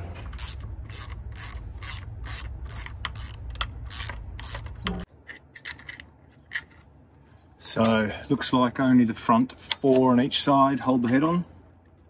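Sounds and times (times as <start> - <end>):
ratchet wrench clicking: 0.3 - 5.1.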